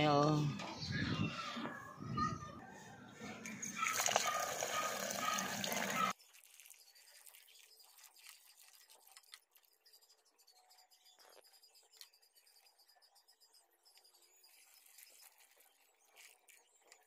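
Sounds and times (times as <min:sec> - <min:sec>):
tap water running into pot: 0:03.8 - 0:06.1
hand washing rice in water: 0:03.8 - 0:06.7.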